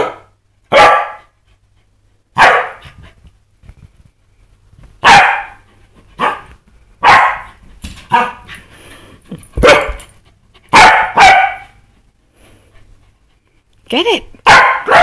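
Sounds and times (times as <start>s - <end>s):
dog barking excitedly: 0.0s - 1.4s, 2.3s - 3.0s, 5.0s - 8.5s, 9.6s - 10.0s, 10.7s - 11.9s, 14.4s - 15.0s.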